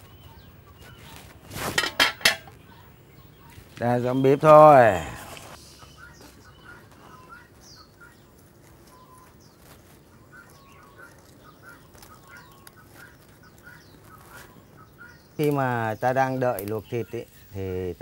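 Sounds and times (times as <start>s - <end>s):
faint birds chirping: 0.0s - 18.0s
wood fire crackling: 3.5s - 5.8s, 6.8s - 18.0s.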